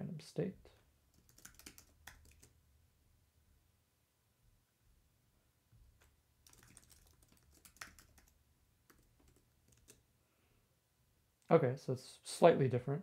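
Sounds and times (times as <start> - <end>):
keyboard typing: 1.1 - 2.6, 6.0 - 10.0.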